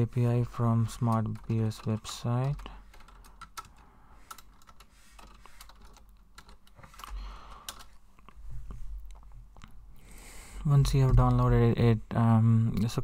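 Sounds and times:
keyboard typing clicks: 10.9s - 11.5s.

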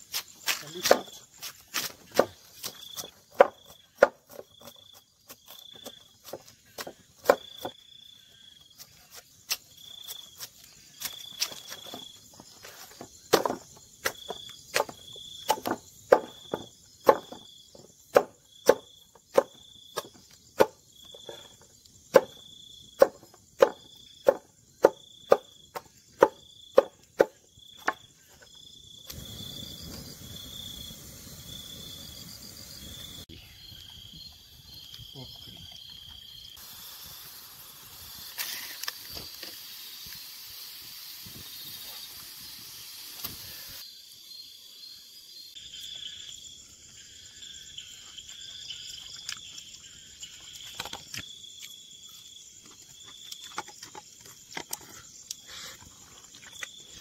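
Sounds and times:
crickets chirping: 0.0s - 57.0s
machete chopping bamboo: 0.1s - 7.7s, 13.0s - 17.4s, 18.1s - 20.8s, 22.1s - 28.1s
steady hiss: 29.0s - 35.6s, 36.5s - 44.8s.

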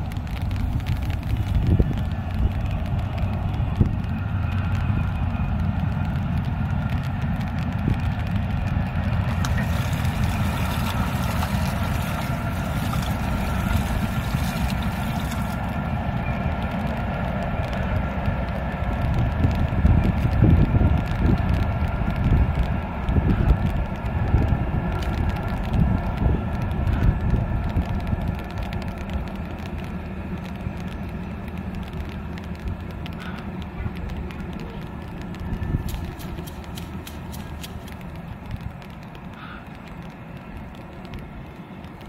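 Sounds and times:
wind rumbling on microphone: 0.0s - 42.0s
water splashing and sloshing: 7.0s - 16.1s, 27.7s - 42.0s.

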